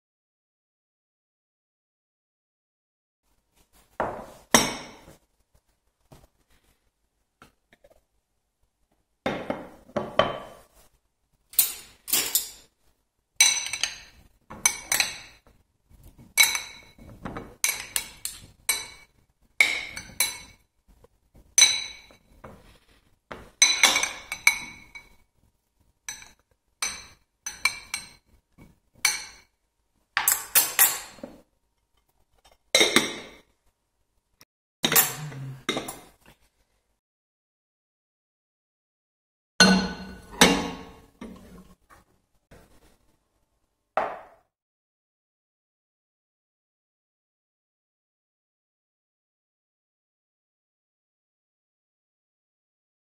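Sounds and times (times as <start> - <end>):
metal spoons clinking on glass bowl: 11.6 - 12.7, 13.4 - 15.5, 16.3 - 20.6, 21.6 - 22.2, 23.6 - 25.1, 26.1 - 28.3, 29.0 - 29.5, 30.2 - 31.2, 34.9 - 36.0, 39.6 - 41.0.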